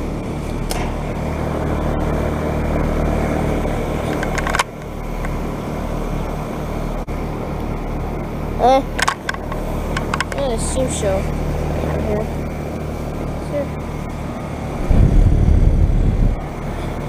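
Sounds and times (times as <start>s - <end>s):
heat pump compressor hum: 0.0s - 17.0s.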